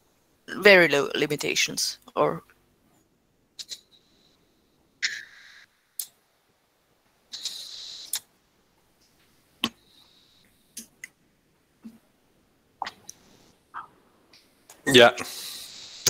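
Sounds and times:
short bursts of hiss: 7.3 - 8.3.

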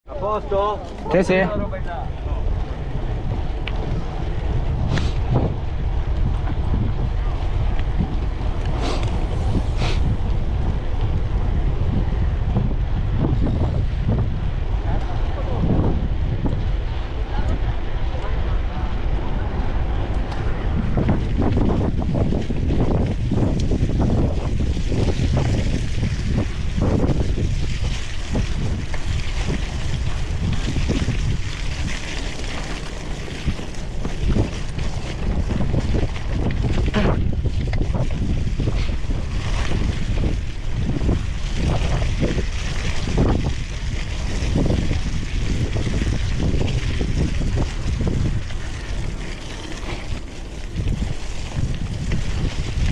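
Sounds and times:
bike tyre rumble on dirt: 0.0 - 52.9
wind buffeting microphone: 0.0 - 52.9.

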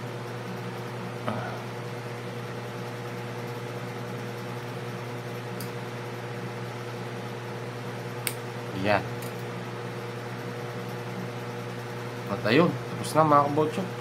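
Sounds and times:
machine hum: 0.0 - 14.0
light click: 8.2 - 8.4.

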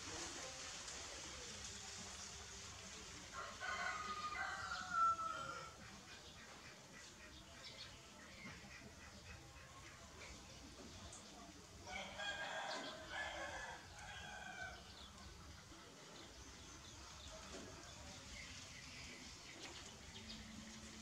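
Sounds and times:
faint background noise: 0.0 - 21.0
rooster crowing: 3.4 - 5.8, 11.9 - 14.8.

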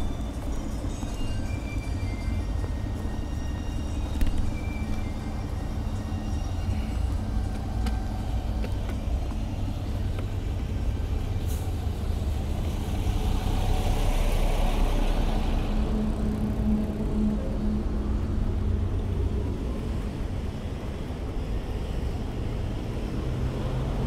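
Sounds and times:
traffic engine rumble: 0.0 - 24.0.

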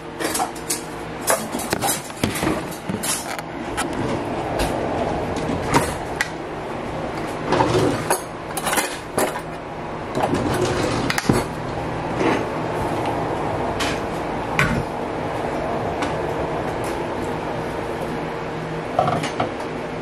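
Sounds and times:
utensils clinking on dishes: 0.0 - 3.4, 7.5 - 9.6
low hum: 0.0 - 20.0.

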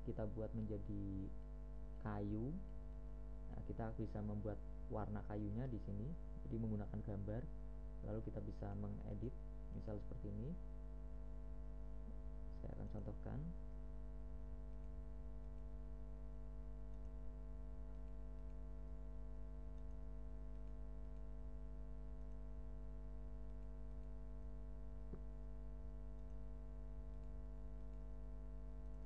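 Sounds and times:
electrical mains hum: 0.0 - 29.0
faint clicks: 14.7 - 15.8, 16.8 - 18.7, 19.6 - 21.5, 26.1 - 26.4, 27.0 - 28.1.

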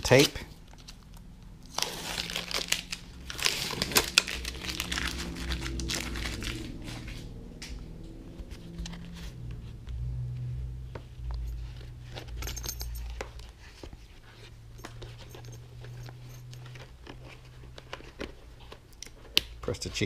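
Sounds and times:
low steady hum: 0.0 - 20.0
helmet pad rustling: 11.0 - 20.0.

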